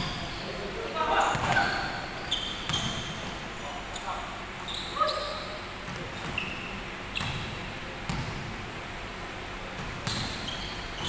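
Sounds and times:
sneakers squeaking on floor: 0:00.0 - 0:08.3, 0:09.8 - 0:11.0
basketball bouncing: 0:01.3 - 0:01.8, 0:07.2 - 0:08.5, 0:09.8 - 0:11.0.

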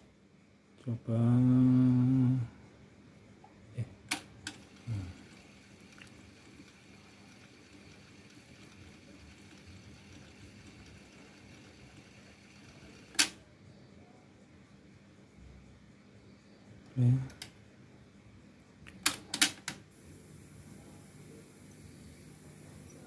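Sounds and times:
faint steady hiss: 0:00.0 - 0:23.0
cassette deck click: 0:13.1 - 0:13.4.

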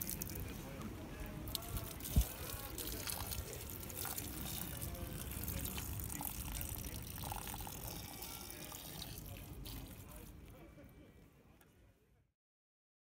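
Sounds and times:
water trickling into drain grate: 0:00.0 - 0:10.7.

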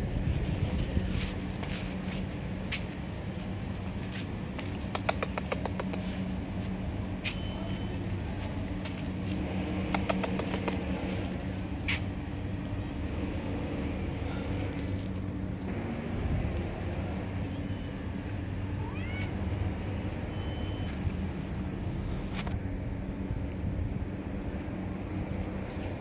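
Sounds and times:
low mechanical hum: 0:00.0 - 0:26.0
sharp clicks: 0:04.9 - 0:06.1.

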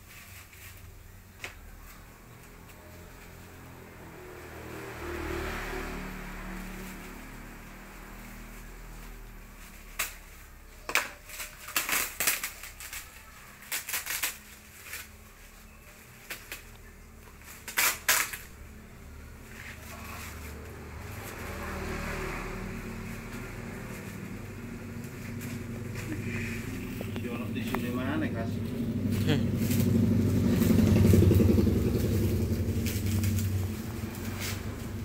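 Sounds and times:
paper and tape tearing: 0:08.1 - 0:18.8, 0:19.4 - 0:22.3
low steady rumble: 0:22.8 - 0:35.0.

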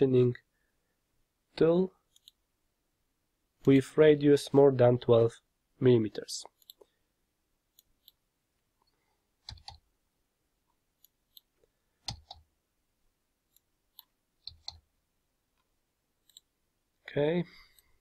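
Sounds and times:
mouse and keyboard clicks: 0:09.4 - 0:09.8, 0:11.0 - 0:12.5, 0:13.5 - 0:14.8.

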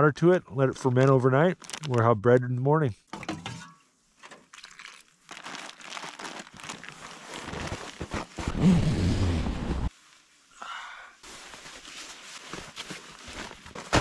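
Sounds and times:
plastic bag crinkling: 0:01.5 - 0:02.0, 0:04.6 - 0:08.5.

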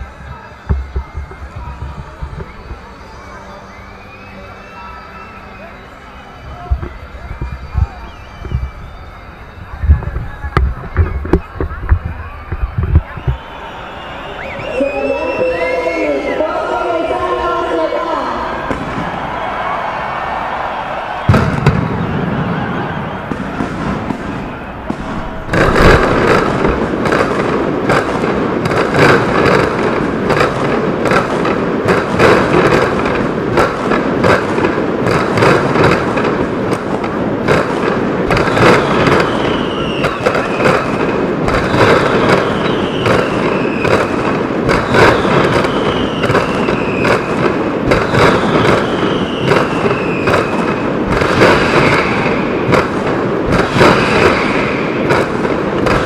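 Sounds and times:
firecrackers exploding: 0:00.0 - 0:56.0
whistling fireworks: 0:00.0 - 0:56.0.

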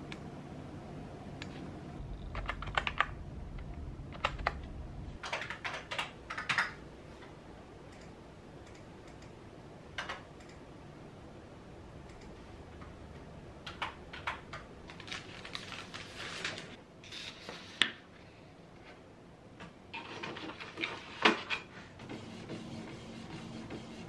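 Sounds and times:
printer hum: 0:22.0 - 0:24.0.

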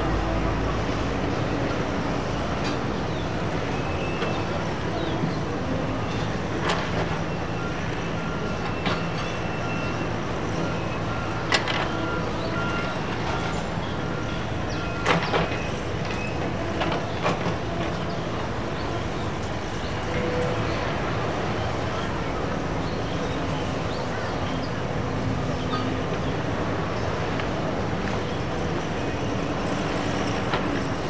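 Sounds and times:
diesel machines running: 0:00.0 - 0:31.0
machinery knocks and clanks: 0:15.0 - 0:18.2.

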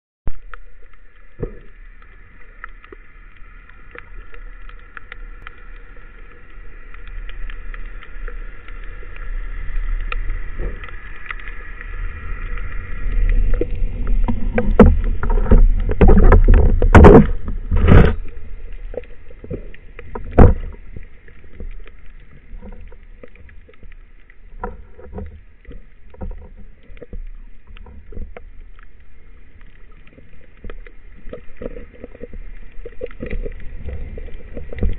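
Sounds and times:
rushing water: 0:00.3 - 0:34.9
small clicks: 0:00.3 - 0:34.9
loud knocks underwater: 0:14.2 - 0:18.2, 0:20.2 - 0:20.8.

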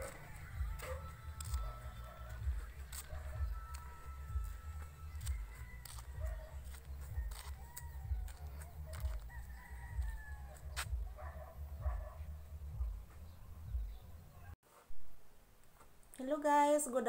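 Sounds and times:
rooster crowing: 0:03.1 - 0:10.8.

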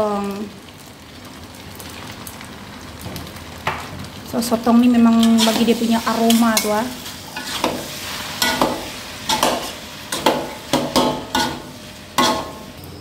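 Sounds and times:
wok sizzling: 0:00.0 - 0:13.0
spatula scraping a wok: 0:05.2 - 0:12.8.

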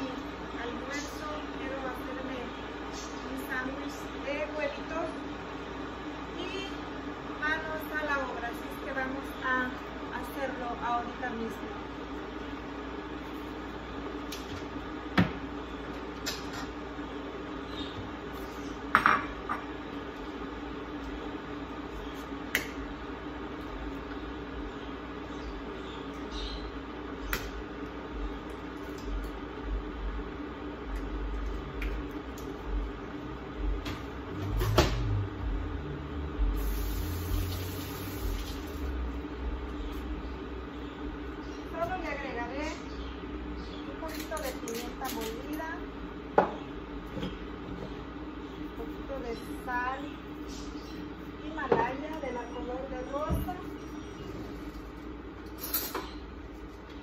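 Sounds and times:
steady low hum: 0:00.0 - 0:57.0
dishes knocking and clinking: 0:18.9 - 0:19.7
sink tap running: 0:36.6 - 0:38.8.

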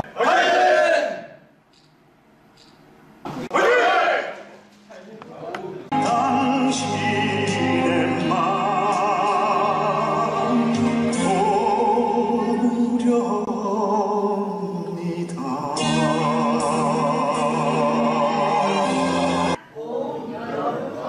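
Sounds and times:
operatic singing with vibrato: 0:05.9 - 0:20.6.

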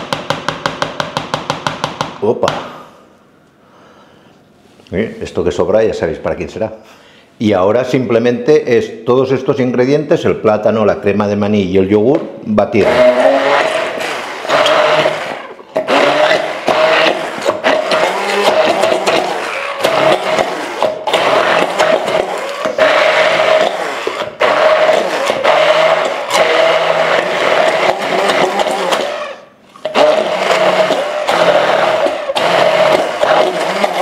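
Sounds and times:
stick blender motor: 0:12.8 - 0:34.0.

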